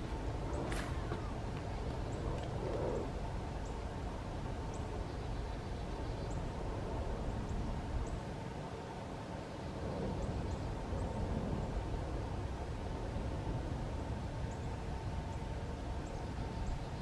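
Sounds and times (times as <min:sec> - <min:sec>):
wind rumble on microphone: 0:00.0 - 0:17.0.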